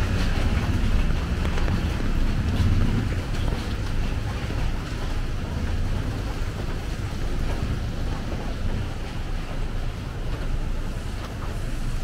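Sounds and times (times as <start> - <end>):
low traffic rumble: 0.0 - 12.0
tyres hissing on wet road: 5.7 - 12.0.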